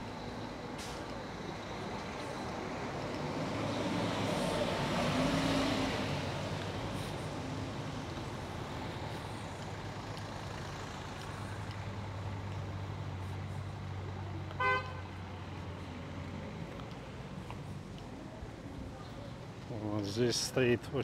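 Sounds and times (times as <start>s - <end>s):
vehicle engine humming: 0.0s - 21.0s
car horn toot: 14.6s - 15.1s.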